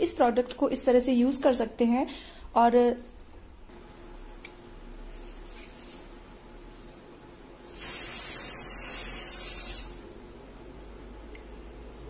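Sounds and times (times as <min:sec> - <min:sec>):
aerosol spray hissing: 0:07.7 - 0:10.0.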